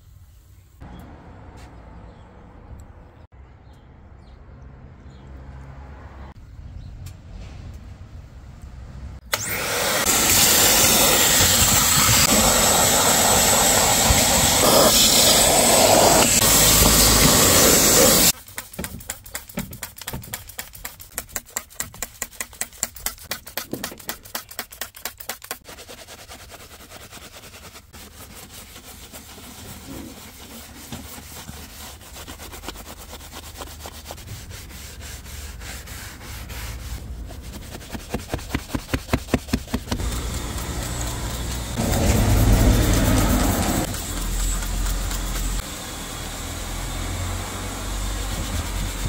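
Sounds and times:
towel rubbing plastic: 0:12.2 - 0:45.6.

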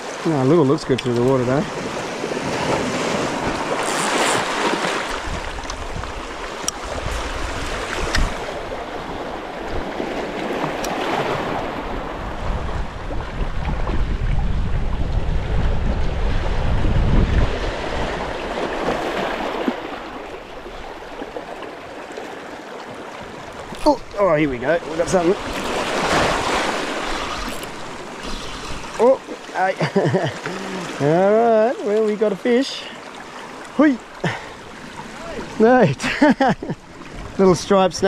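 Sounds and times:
sea waves washing over rocks: 0:00.0 - 0:38.0
wind gusting across microphone: 0:00.7 - 0:21.1, 0:23.5 - 0:29.1.

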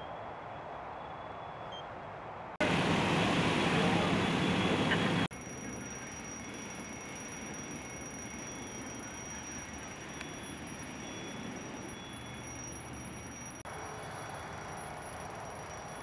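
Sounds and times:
fire background noise: 0:02.6 - 0:16.0
high-pitched whine: 0:02.6 - 0:16.0.

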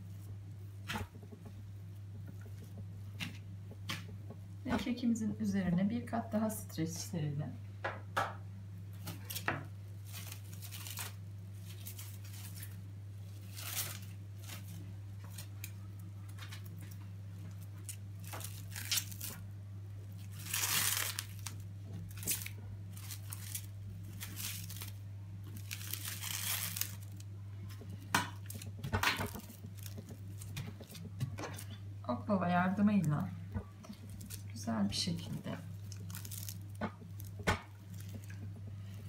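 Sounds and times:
cling film crinkling: 0:09.0 - 0:31.9, 0:32.6 - 0:39.0.

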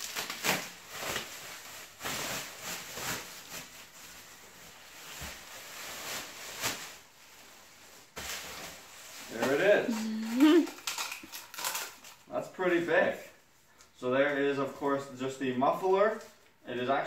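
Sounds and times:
bubble wrap crinkling: 0:00.0 - 0:12.4.

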